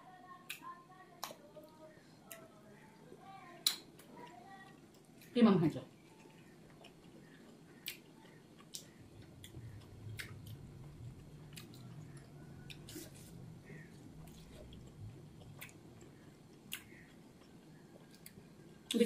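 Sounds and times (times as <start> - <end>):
faint chewing: 0.5 - 19.0
wet mouth clicks and smacks: 15.5 - 18.4.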